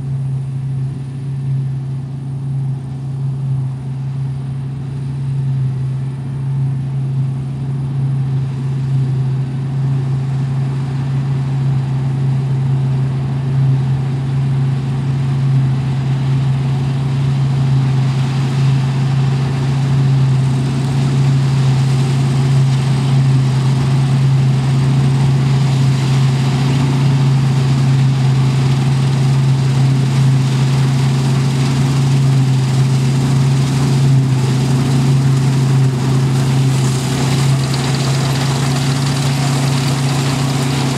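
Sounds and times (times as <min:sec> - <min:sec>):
combine harvester engine drone: 0:00.0 - 0:40.9
harvester machinery noise: 0:29.9 - 0:40.9.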